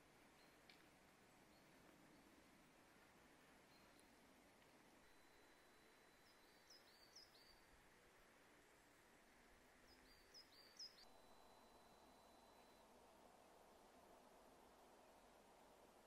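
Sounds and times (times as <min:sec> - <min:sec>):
small bird chirping: 0:05.0 - 0:07.7, 0:09.8 - 0:12.8.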